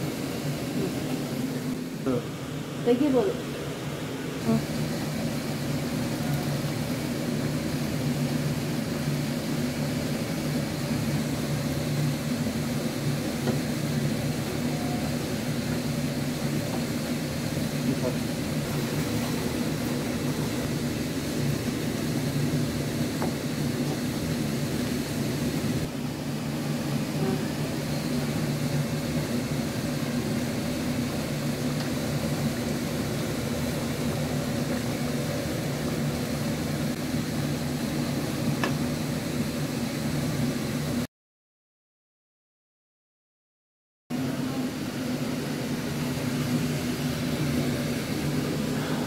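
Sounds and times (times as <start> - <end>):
machine hum with whoosh: 0.0 - 41.1.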